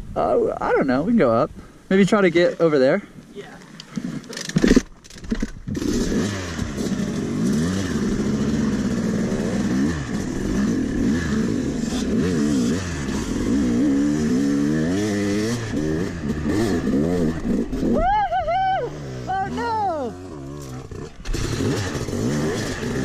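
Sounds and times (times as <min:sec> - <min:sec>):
dirt bike engine revving: 0:05.7 - 0:23.0.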